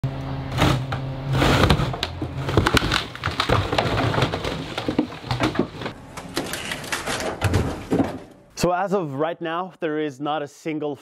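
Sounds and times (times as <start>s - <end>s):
footsteps crunching on debris: 1.6s - 8.3s.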